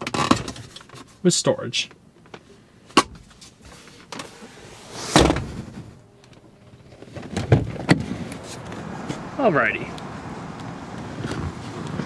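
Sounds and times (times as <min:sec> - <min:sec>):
heavy thump: 0:05.1 - 0:06.0.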